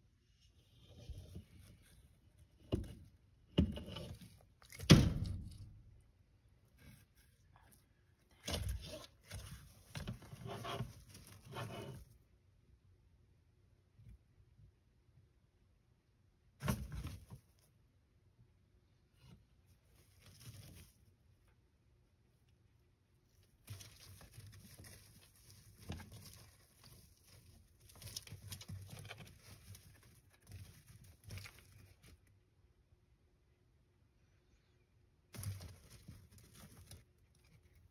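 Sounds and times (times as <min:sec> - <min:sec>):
faint scraping and rustling: 0:00.0 - 0:12.4, 0:18.8 - 0:32.7, 0:34.1 - 0:37.9.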